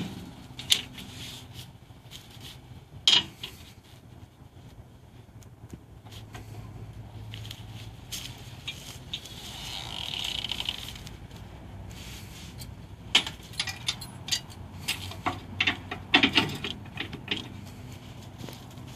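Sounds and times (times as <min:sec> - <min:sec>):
metallic clicks and clanks: 0:03.0 - 0:03.6, 0:13.1 - 0:17.6
winch rattling whirr: 0:13.1 - 0:17.9.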